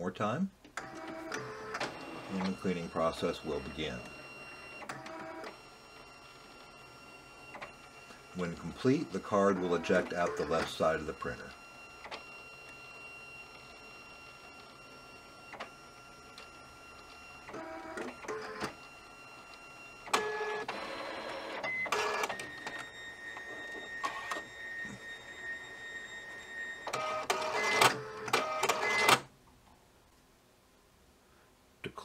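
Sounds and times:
card printer motor whine: 0.8 - 29.3
printer rollers whirring: 0.8 - 29.3
printer clicks: 26.9 - 29.3.

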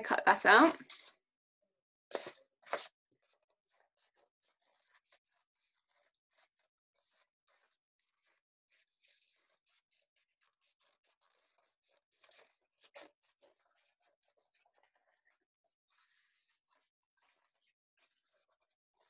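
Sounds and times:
paper being handled: 2.1 - 2.9.

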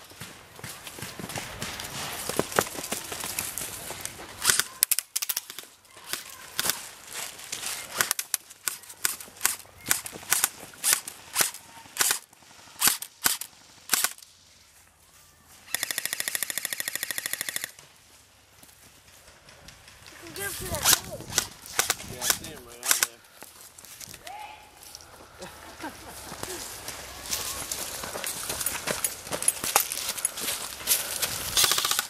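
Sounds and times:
airsoft guns firing: 7.9 - 14.2, 15.7 - 17.8, 31.6 - 32.0
airsoft rifle full-auto burst: 15.7 - 17.7, 31.6 - 32.0.

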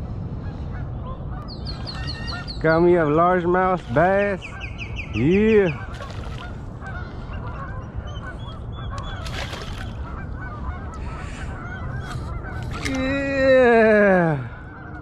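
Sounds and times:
fish splashing in shallow water: 5.8 - 6.9, 8.9 - 10.2.

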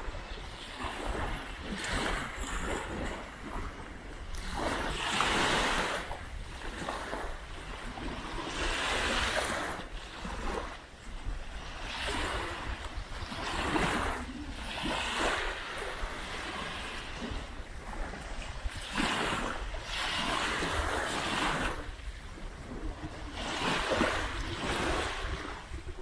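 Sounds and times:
small waves washing onto beach: 0.0 - 26.0
wind rumble on microphone: 0.0 - 26.0.

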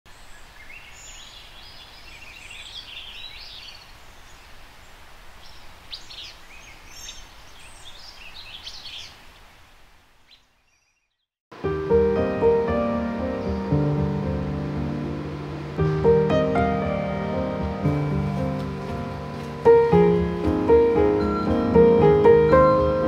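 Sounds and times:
small birds chirping: 0.1 - 11.4
wind rushing: 13.4 - 22.0.

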